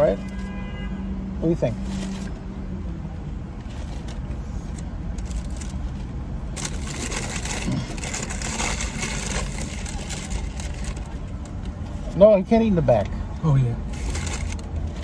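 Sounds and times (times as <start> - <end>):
scraping rustling noise: 1.6 - 2.5, 3.6 - 12.2, 13.9 - 15.0.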